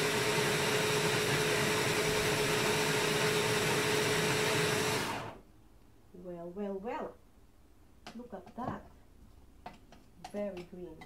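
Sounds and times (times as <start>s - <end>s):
hand blender motor whirring: 0.0s - 5.4s.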